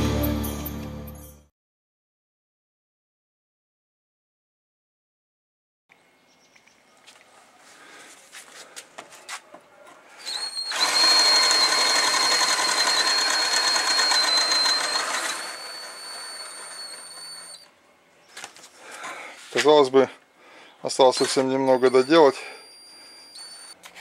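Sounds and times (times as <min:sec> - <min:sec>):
drill bit rasping wood: 0:10.2 - 0:17.6, 0:21.0 - 0:23.7
drill motor whining: 0:10.2 - 0:17.7, 0:20.9 - 0:23.8.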